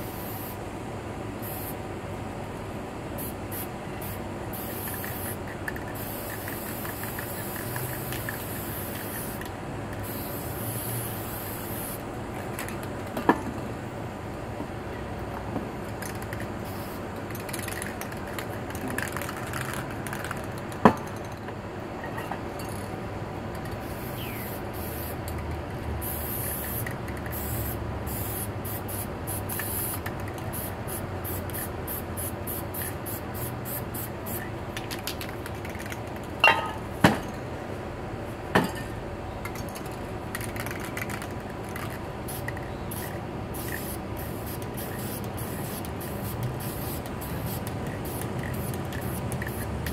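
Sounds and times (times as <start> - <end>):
spray paint can hissing: 0.0 - 0.6, 1.4 - 1.8, 3.2 - 12.0, 15.9 - 20.7, 23.6 - 25.2, 26.0 - 36.3, 40.3 - 49.9.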